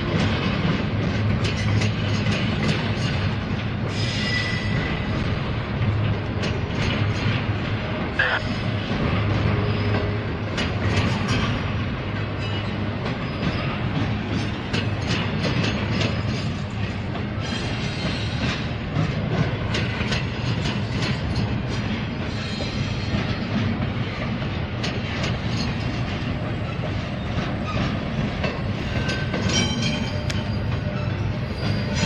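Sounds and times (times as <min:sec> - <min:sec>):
wheels clicking over rail joints: 0:00.0 - 0:08.2, 0:08.8 - 0:32.0
train rumbling past: 0:00.0 - 0:32.0
high wheel squeal: 0:03.9 - 0:05.1, 0:28.8 - 0:32.0.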